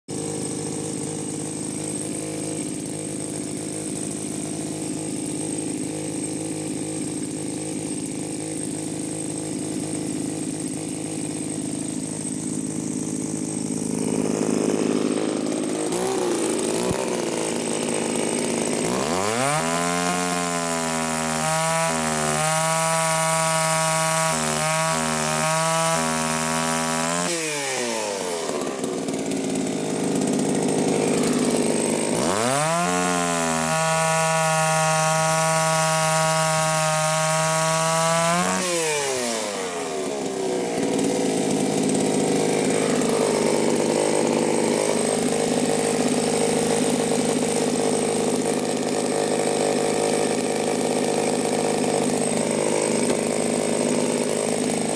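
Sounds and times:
chainsaw cutting wood: 0.1s - 54.9s.

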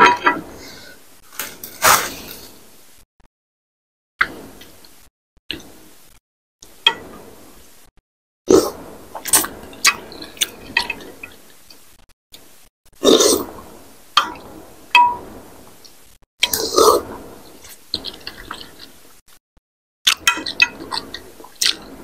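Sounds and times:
wet chewing and slurping: 16.4s - 19.1s, 20.1s - 21.9s.

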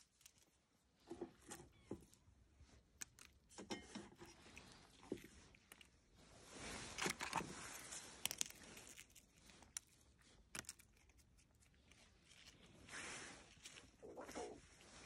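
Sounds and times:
rustling and crinkling: 0.0s - 15.0s.

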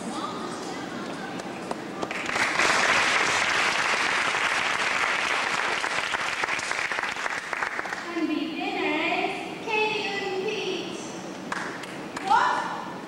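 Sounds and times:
audience applauding: 2.0s - 8.0s.

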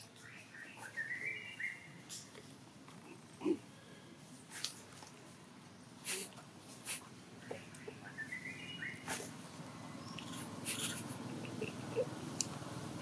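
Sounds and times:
macaques breathy huffs: 6.0s - 7.0s, 10.3s - 11.4s.

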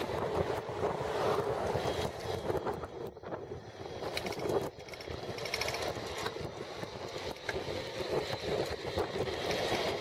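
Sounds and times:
wind and tyre noise: 0.0s - 10.0s
bicycle clicks and rattles: 4.0s - 10.0s.

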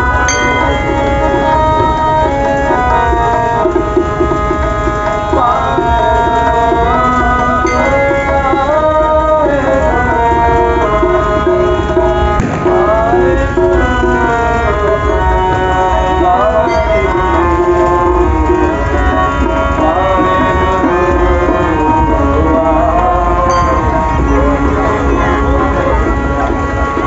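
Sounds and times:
sustained melodic tones: 0.0s - 27.0s
tabla rhythm: 0.0s - 27.0s.

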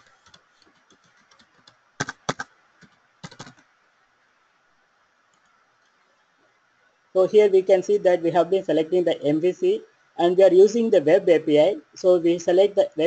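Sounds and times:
typing on computer keyboard: 0.0s - 3.6s.

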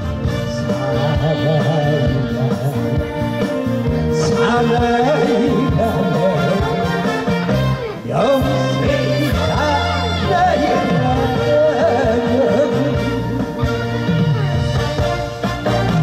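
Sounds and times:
instrumental accompaniment: 0.0s - 16.0s
man singing into a microphone: 0.1s - 3.2s, 4.1s - 13.6s.

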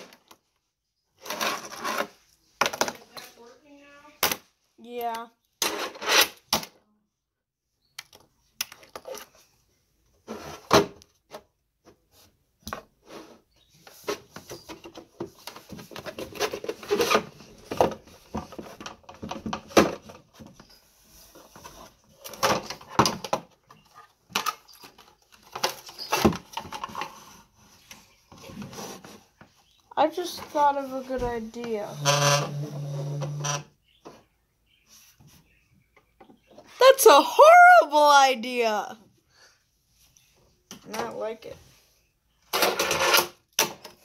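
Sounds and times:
fingerboard wheels rolling and scraping: 1.2s - 2.3s.

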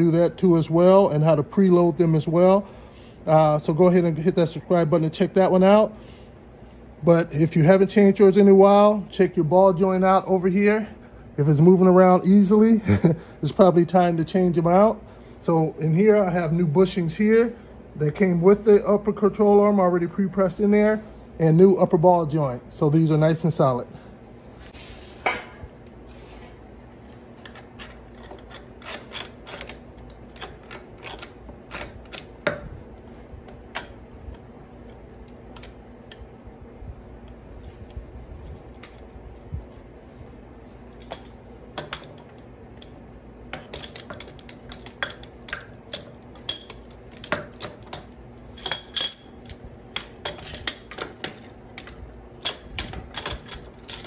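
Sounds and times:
faint steady hum: 0.0s - 54.0s
metal parts clinking and knocking: 27.4s - 32.8s, 33.5s - 36.2s, 37.6s - 40.0s, 40.8s - 54.0s.

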